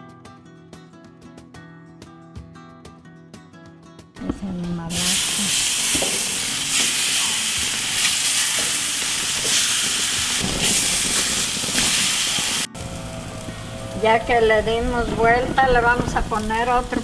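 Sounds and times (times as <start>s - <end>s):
meat sizzling on a grill: 4.9s - 14.6s.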